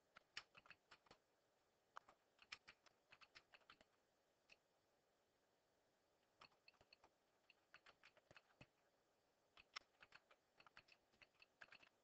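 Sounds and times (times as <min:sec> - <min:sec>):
computer keyboard keystrokes: 0:00.1 - 0:01.2, 0:01.9 - 0:03.9, 0:06.4 - 0:08.7, 0:09.6 - 0:12.0.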